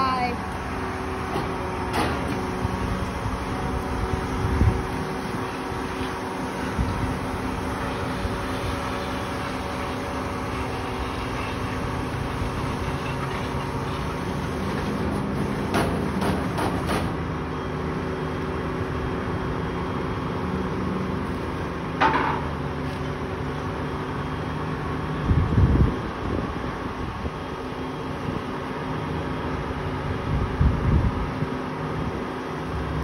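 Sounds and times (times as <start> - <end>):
diesel engine idling: 0.0 - 14.6.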